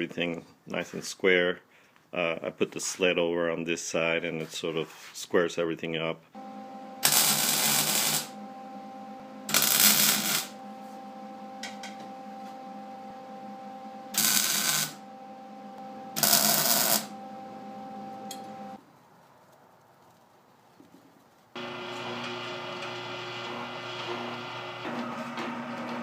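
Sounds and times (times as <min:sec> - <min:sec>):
steady hum: 0:06.4 - 0:18.8
arc welding crackle: 0:07.0 - 0:08.3, 0:09.5 - 0:10.5, 0:14.1 - 0:15.0, 0:16.2 - 0:17.1.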